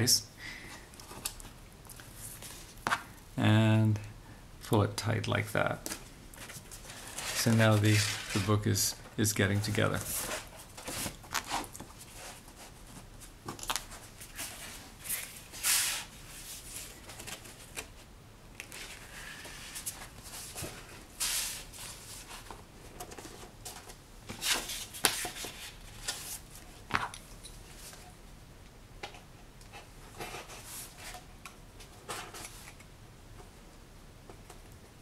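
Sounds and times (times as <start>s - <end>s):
paper rustling and sliding: 6.4s - 18.0s, 18.6s - 26.6s.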